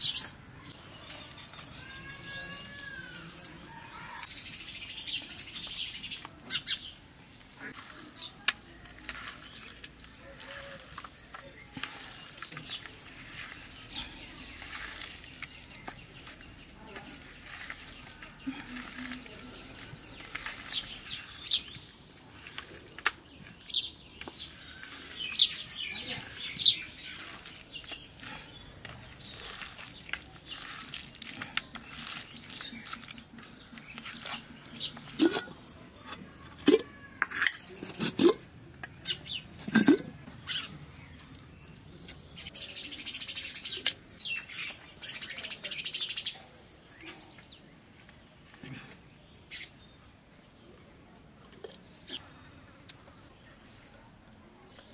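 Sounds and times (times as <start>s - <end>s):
birds chirping: 0.0s - 54.9s
hands squelching raw meat in bowl: 7.4s - 21.5s, 24.4s - 35.6s.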